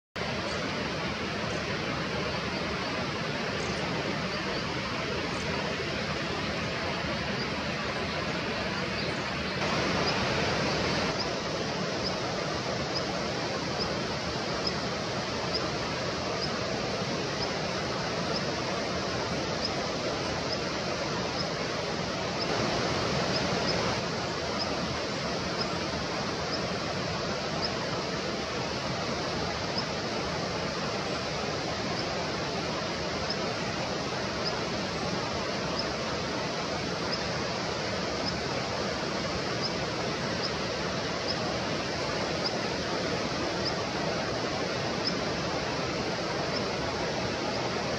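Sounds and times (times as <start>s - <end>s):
steady rushing noise: 0.2s - 47.9s.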